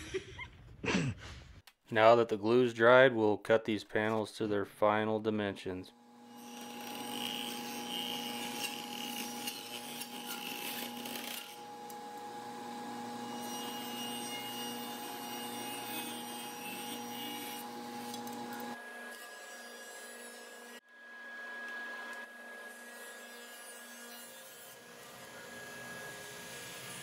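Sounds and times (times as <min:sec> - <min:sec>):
table saw cutting wood: 0:06.0 - 0:27.0.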